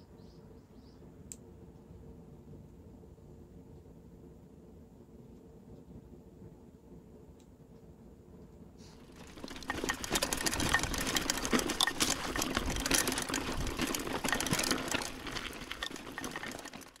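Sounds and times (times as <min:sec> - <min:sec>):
bike chain and frame clatter: 0:09.0 - 0:17.0
tyres crunching over loose stones: 0:09.0 - 0:17.0.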